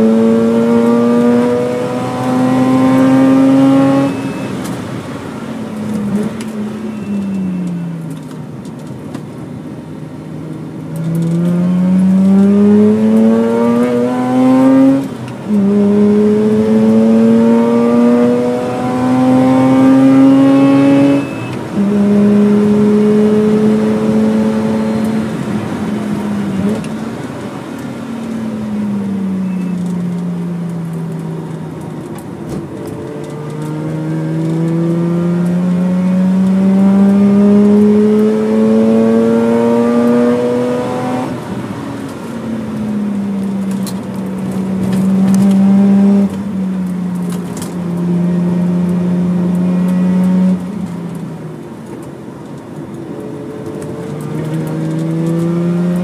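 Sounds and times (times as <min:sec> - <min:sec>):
rotary engine accelerating: 0:00.0 - 0:04.3, 0:11.0 - 0:26.9, 0:32.8 - 0:41.7, 0:42.8 - 0:51.2, 0:53.0 - 0:56.0.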